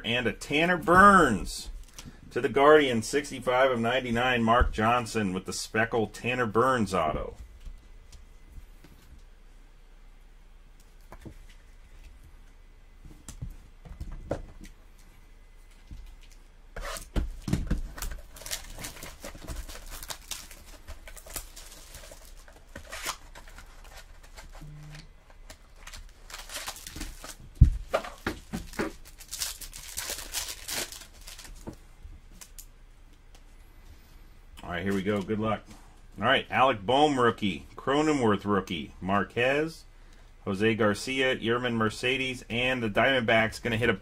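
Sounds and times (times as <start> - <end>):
card wrappers tearing: 17.8 - 24.6, 25.3 - 31.7
cards rustling: 17.8 - 24.6, 25.3 - 31.8.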